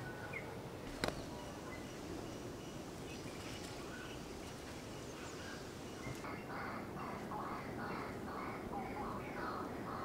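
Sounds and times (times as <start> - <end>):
faint bird calls: 0.0 - 10.0
steady background hiss: 0.0 - 10.0.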